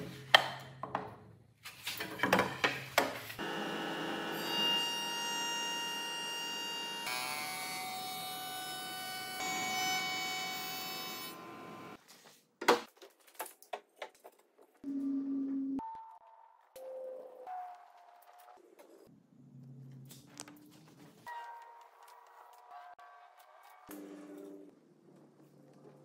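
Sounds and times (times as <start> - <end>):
router whining: 3.4 - 4.4.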